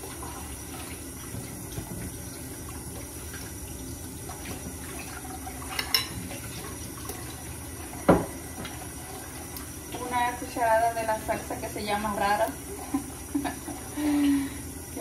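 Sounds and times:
tap running into a steel sink: 0:08.0 - 0:08.8.

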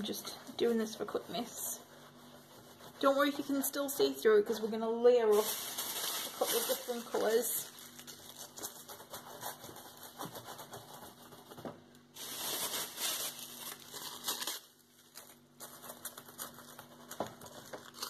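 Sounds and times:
tissue paper crinkling and rustling: 0:05.2 - 0:09.0, 0:12.2 - 0:18.0.

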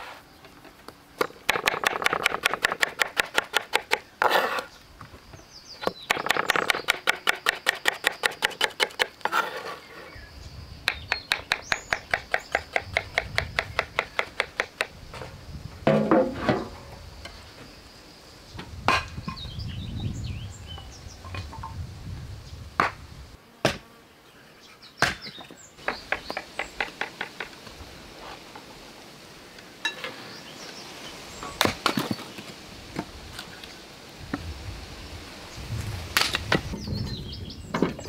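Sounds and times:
hatchet chopping kindling: 0:05.8 - 0:09.2, 0:22.8 - 0:23.0, 0:23.6 - 0:23.9, 0:25.0 - 0:27.5.

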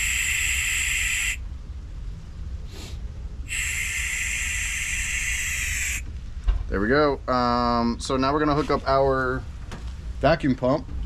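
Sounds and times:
gas hissing from valve: 0:00.0 - 0:01.4, 0:02.7 - 0:06.0
faint short puff: 0:02.7 - 0:04.2.

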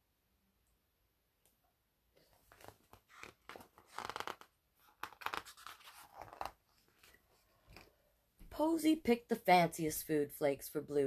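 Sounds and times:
paper pages rustling: 0:02.2 - 0:08.0.

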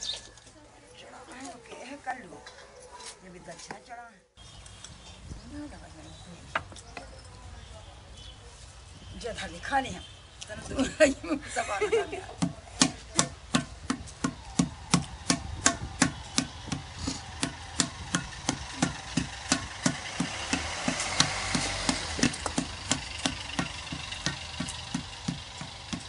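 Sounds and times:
wooden paddle knocking clay pot: 0:12.4 - 0:26.0.

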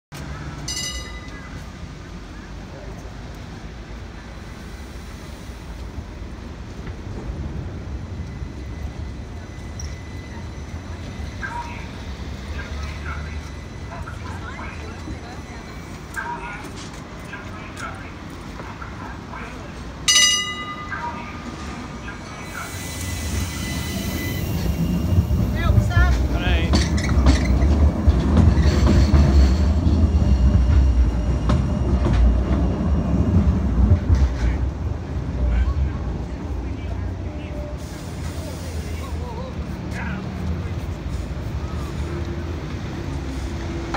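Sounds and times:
tram wheels rumbling on rail: 0:00.1 - 0:43.9
wheels clicking over rail joints: 0:25.7 - 0:30.1.

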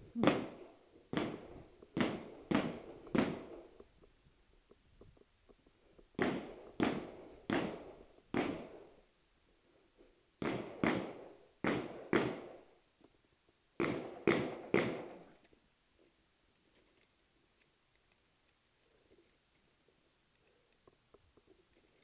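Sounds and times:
distant echoing gunshots: 0:00.2 - 0:03.8, 0:06.2 - 0:09.0, 0:10.4 - 0:12.7, 0:13.8 - 0:15.3.

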